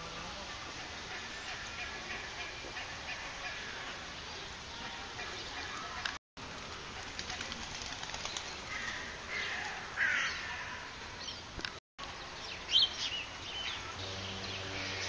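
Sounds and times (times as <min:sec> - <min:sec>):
birds sharp calls: 0:06.9 - 0:11.5.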